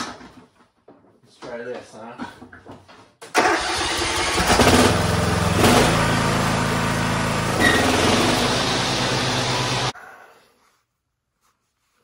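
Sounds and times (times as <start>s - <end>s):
mower engine running: 3.4s - 9.9s.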